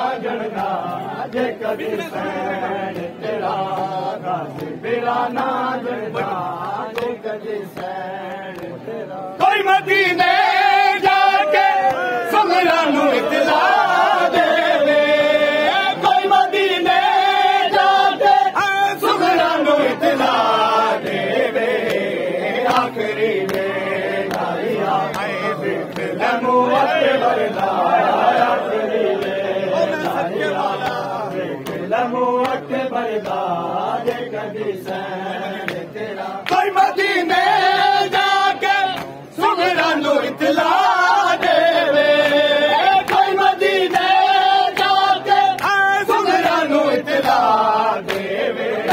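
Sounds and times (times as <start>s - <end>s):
men chanting in unison: 0.0s - 48.9s.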